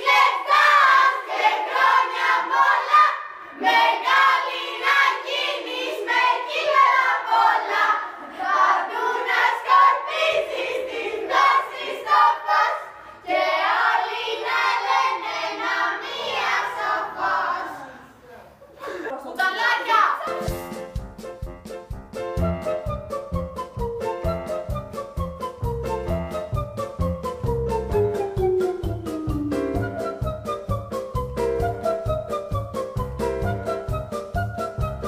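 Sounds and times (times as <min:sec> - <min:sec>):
girls and women singing together: 0:00.0 - 0:18.2.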